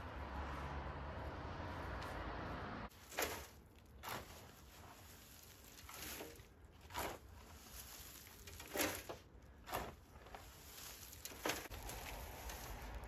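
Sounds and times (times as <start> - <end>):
spade scraping wood chips: 2.9 - 13.0
wood chips landing in wheelbarrow: 2.9 - 13.0.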